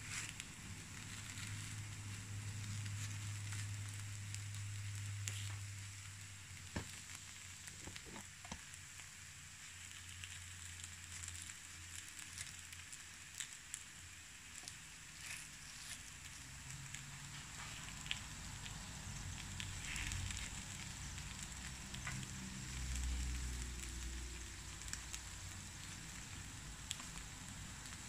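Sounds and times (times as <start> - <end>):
batter sizzling on hot plate: 0.0 - 28.0.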